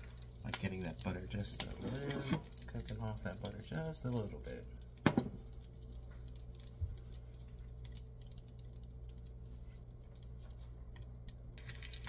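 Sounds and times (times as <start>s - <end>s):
butter sizzling in a skillet: 0.0s - 7.0s
faint crackles: 0.0s - 12.0s
steady low hum: 0.0s - 12.0s.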